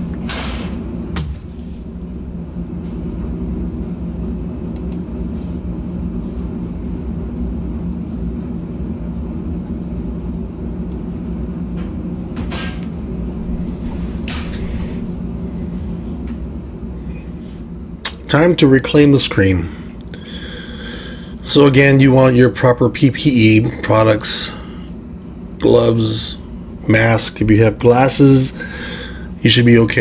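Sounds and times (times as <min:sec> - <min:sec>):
shop machinery humming: 0:00.0 - 0:30.0.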